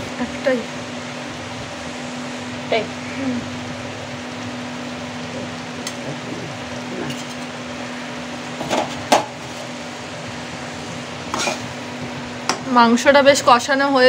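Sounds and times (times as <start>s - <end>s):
steady hiss and hum: 0.0s - 14.0s
spatula stirring in pan: 11.2s - 12.6s.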